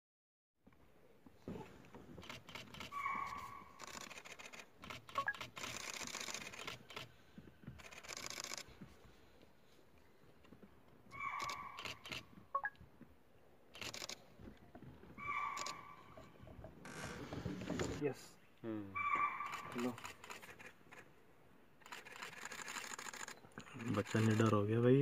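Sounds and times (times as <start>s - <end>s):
camera shutters clicking: 2.2s - 7.1s, 7.8s - 8.7s, 11.2s - 12.3s, 13.8s - 14.2s, 15.4s - 15.9s, 19.4s - 21.0s, 21.8s - 24.6s.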